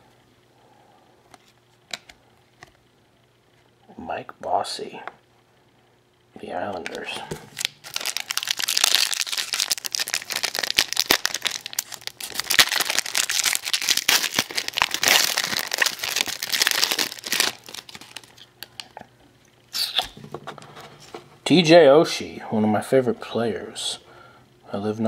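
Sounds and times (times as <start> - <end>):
wrapper crackling and tearing: 6.9 - 18.9.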